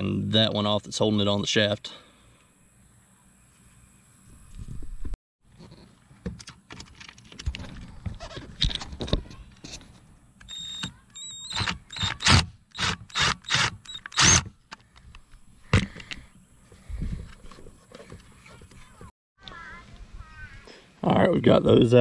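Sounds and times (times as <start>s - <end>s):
cordless driver spinning: 10.4s - 14.5s.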